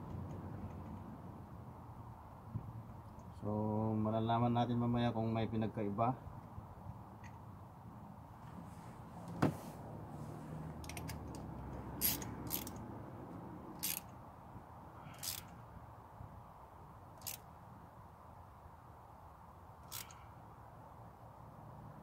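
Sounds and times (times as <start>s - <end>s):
tools clicking and knocking: 10.8s - 12.8s.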